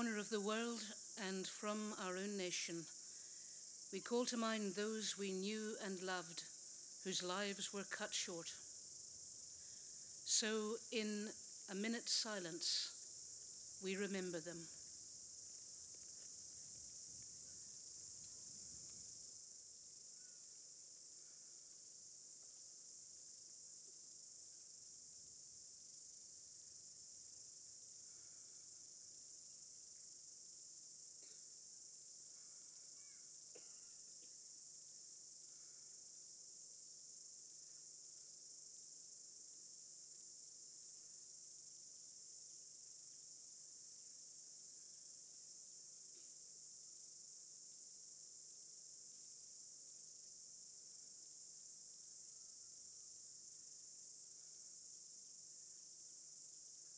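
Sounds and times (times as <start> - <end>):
insects chirring: 0.0 - 56.9.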